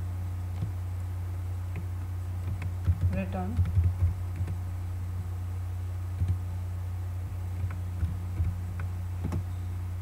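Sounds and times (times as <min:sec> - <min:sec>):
steady low hum: 0:00.0 - 0:10.0
computer keyboard keystrokes: 0:00.5 - 0:00.8, 0:01.7 - 0:04.6, 0:06.2 - 0:06.4, 0:07.6 - 0:09.5.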